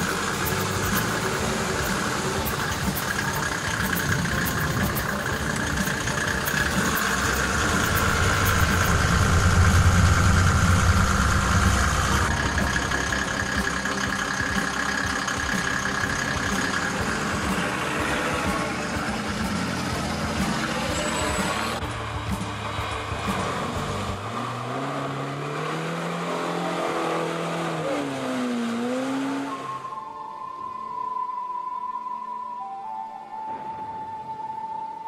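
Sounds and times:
steady high whine: 0.0 - 24.0
car engine running: 0.0 - 29.6.

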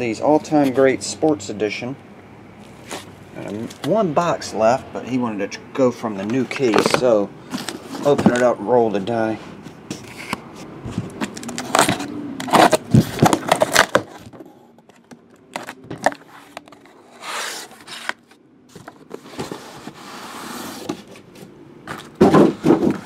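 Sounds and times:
tape and cardboard tearing: 11.0 - 14.4, 15.5 - 21.2.

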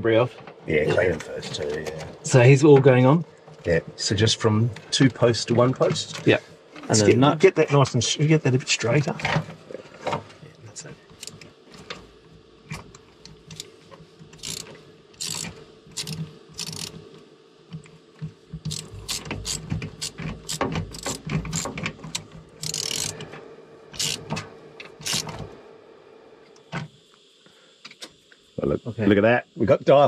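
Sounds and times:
ratchet clicking: 13.2 - 13.7, 14.3 - 17.0, 18.6 - 23.2, 24.0 - 24.4, 25.0 - 25.4
metal tool clicks and rattles: 14.4 - 16.9, 18.7 - 23.2, 24.0 - 24.3, 25.0 - 25.3.

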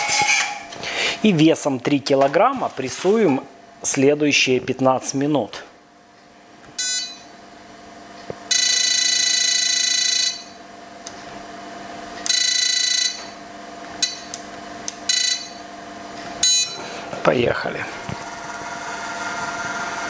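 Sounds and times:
electronic buzzer beeping: 6.8 - 7.3, 8.5 - 10.6, 12.2 - 13.4, 14.0 - 14.4, 15.1 - 15.6, 16.4 - 17.0.

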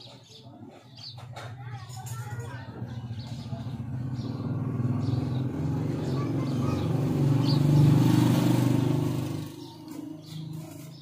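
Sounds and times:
vehicle engine passing by: 2.7 - 11.0.

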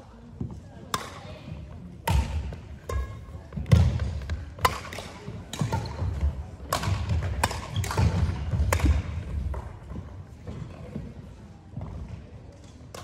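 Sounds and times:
badminton racket hitting shuttlecock: 0.9 - 1.3, 2.0 - 9.7.

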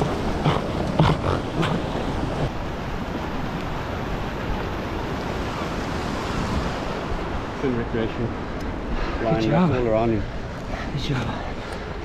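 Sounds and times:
wind buffeting microphone: 0.0 - 9.1
ocean surf rushing: 0.0 - 12.0.

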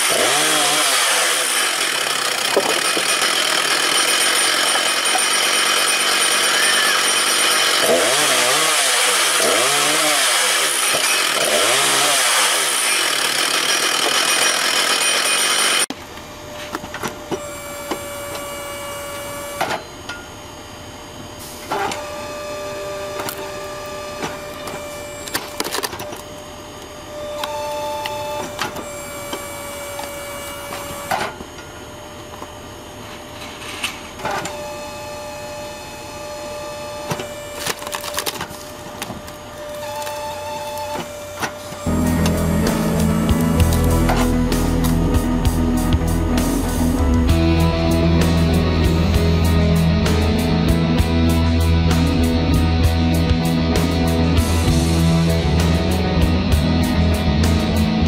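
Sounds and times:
wood splitting cracks: 0.0 - 4.4, 25.2 - 26.2, 37.1 - 41.5
chainsaw revving through log: 0.0 - 15.9, 41.8 - 45.7
hydraulic log splitter humming: 0.0 - 58.0.

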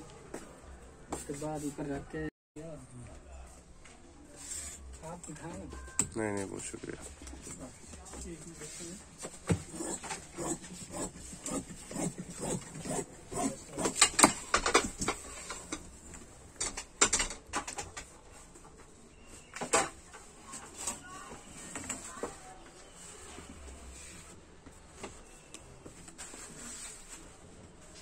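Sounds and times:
shears snipping fabric: 9.5 - 14.4.

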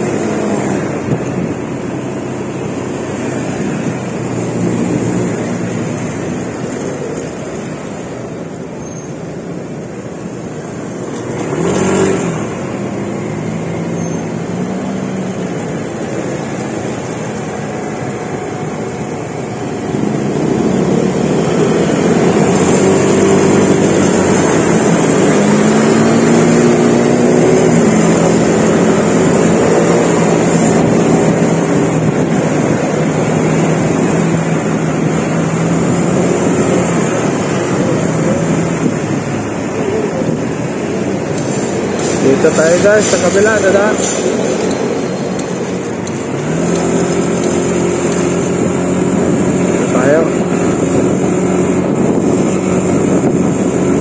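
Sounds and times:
vehicle engine accelerating: 0.0 - 8.7, 9.4 - 54.0
road noise: 0.0 - 54.0.

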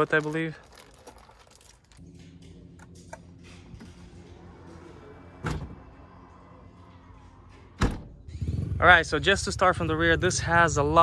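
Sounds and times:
tailgate thunk shutting: 7.8 - 8.2.

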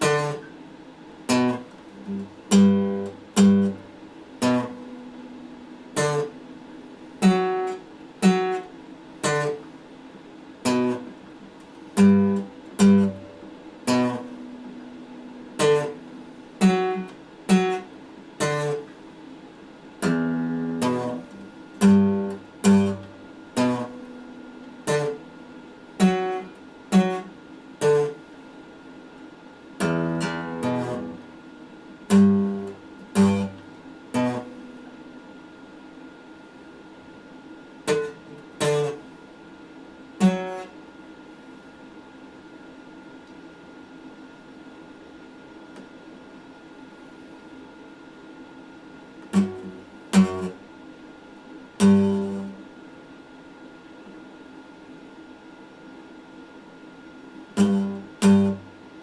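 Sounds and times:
acoustic guitar chords: 0.0 - 0.6, 1.3 - 6.6, 7.2 - 9.7, 10.6 - 19.0, 19.9 - 28.3, 29.8 - 35.2, 37.8 - 39.1, 40.2 - 40.8, 49.2 - 50.7, 51.8 - 52.7, 57.5 - 59.0.

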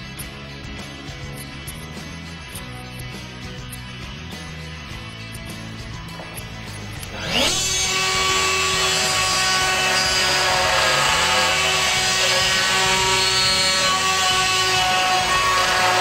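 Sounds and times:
electric router cutting wood: 6.8 - 16.0.

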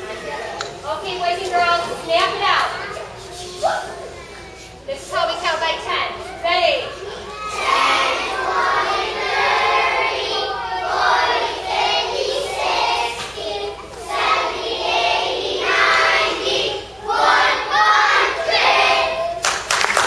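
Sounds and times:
children singing in unison: 7.4 - 19.4.

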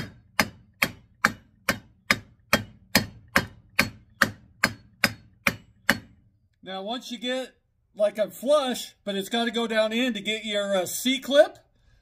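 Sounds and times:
mallet knocking on metal: 0.0 - 6.2.

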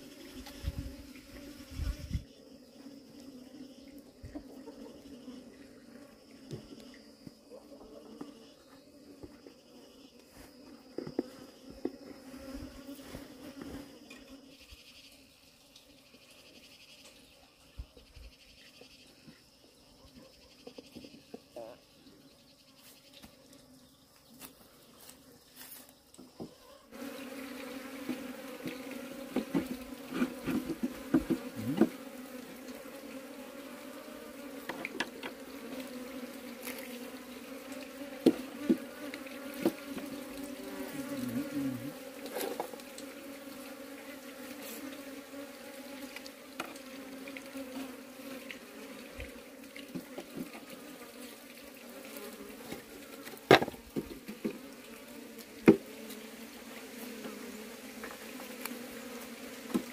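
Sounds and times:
honeybees buzzing: 0.0 - 17.0, 20.8 - 59.9.

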